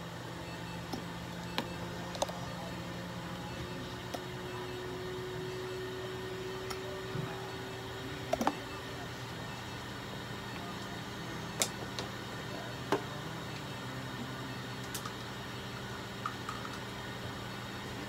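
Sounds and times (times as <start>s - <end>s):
electrical hum: 0.0s - 18.0s
sharp clicks and taps: 8.3s - 8.6s.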